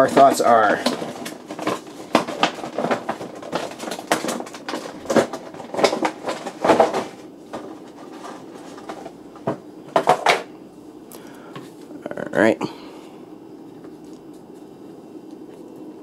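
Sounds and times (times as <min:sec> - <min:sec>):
packaging clicking and rustling: 0:00.0 - 0:10.5.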